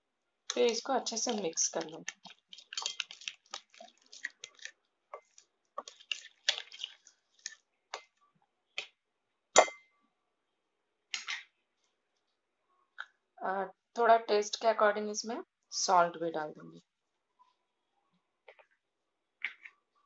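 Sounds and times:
spoon stirring thick marinade: 0:00.5 - 0:08.9
spoon scraping glass bowl: 0:01.1 - 0:07.6.

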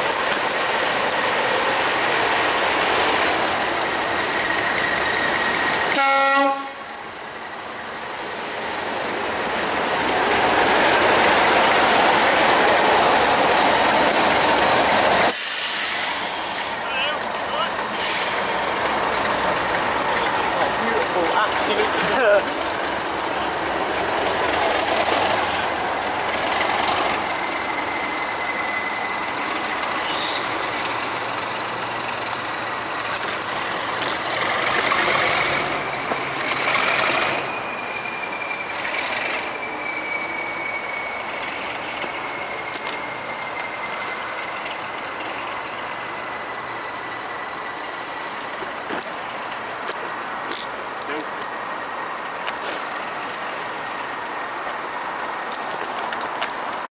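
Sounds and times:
diesel locomotive engine: 0:00.0 - 0:56.9
steady high whistle: 0:37.2 - 0:44.5.

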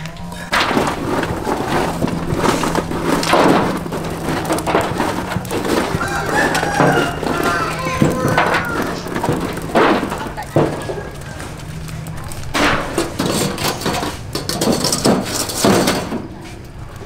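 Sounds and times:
chickens clucking: 0:00.0 - 0:13.8
sticks stirring charcoal in metal grill: 0:00.0 - 0:17.0
rooster crowing: 0:05.7 - 0:09.5.

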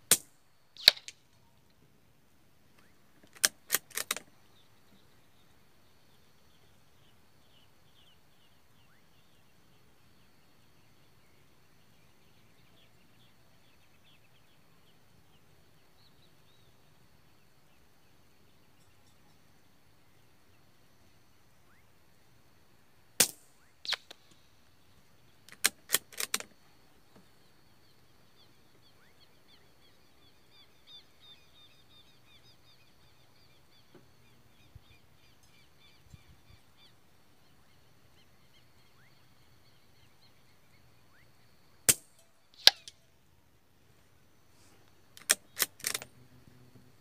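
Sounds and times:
bird singing: 0:00.0 - 0:02.0, 0:02.6 - 0:22.8, 0:23.5 - 0:43.4
rifle bolt clicks: 0:03.2 - 0:04.3, 0:25.5 - 0:26.5, 0:45.2 - 0:46.1.

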